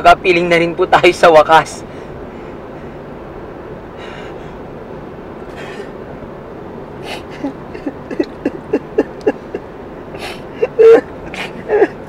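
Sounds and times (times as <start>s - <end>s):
background hiss: 0.1s - 12.0s
person breathing sharply: 4.0s - 4.7s, 5.5s - 6.0s, 10.2s - 10.6s
person sobbing: 7.0s - 12.0s.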